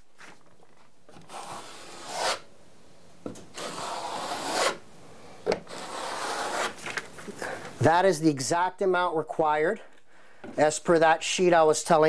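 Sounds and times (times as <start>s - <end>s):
trowel scraping tile adhesive: 5.7s - 6.8s.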